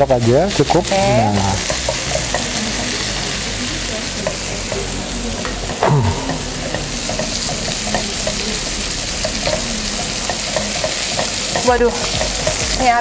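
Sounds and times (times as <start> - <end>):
butter and flour sizzling in a pan: 0.0 - 13.0
spatula ticking against pan: 0.6 - 3.0, 9.2 - 13.0
brief falling tone: 5.8 - 6.7.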